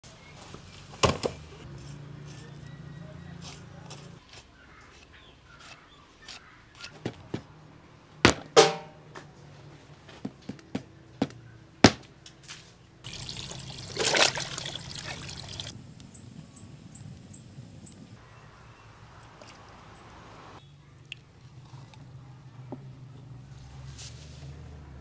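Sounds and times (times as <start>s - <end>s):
cleaver chopping bone and meat: 8.3s - 8.9s
water pouring: 13.0s - 15.8s.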